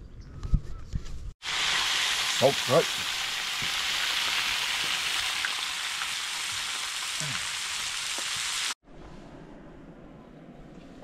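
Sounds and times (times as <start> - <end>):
fish sizzling in a pan: 1.4 - 8.8.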